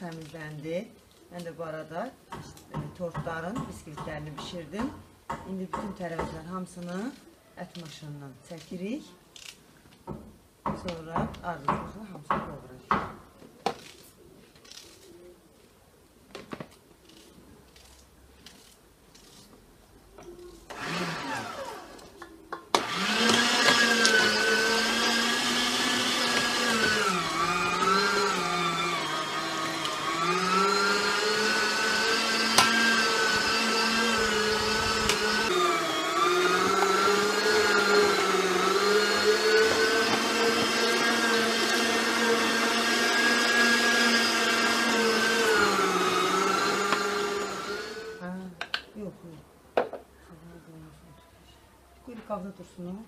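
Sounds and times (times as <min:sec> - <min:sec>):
electric meat grinder motor: 0:20.7 - 0:22.0, 0:22.8 - 0:48.2.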